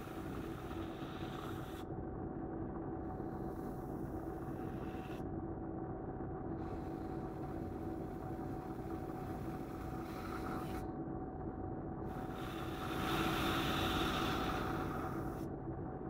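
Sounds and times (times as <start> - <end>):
airbrush hissing: 10.0 - 10.8, 12.1 - 15.4.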